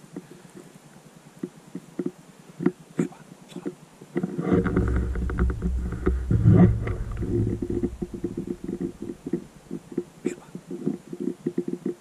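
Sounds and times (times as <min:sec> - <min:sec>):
low rumble on microphone: 0:04.2 - 0:09.8.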